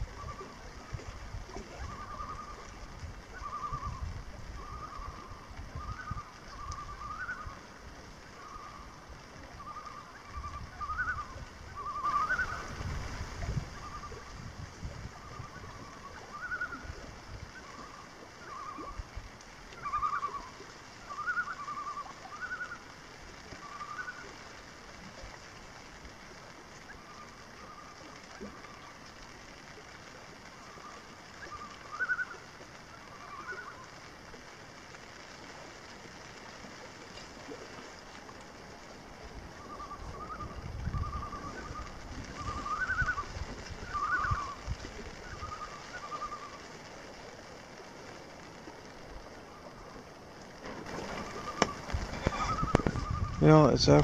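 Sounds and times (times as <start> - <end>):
wind buffeting microphone: 0.0 - 7.6, 10.2 - 17.7, 39.0 - 46.3, 49.0 - 54.0.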